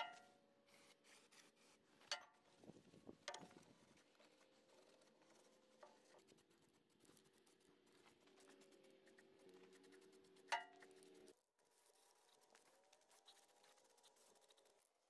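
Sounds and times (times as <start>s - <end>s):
soft rustling: 0.1s - 14.8s.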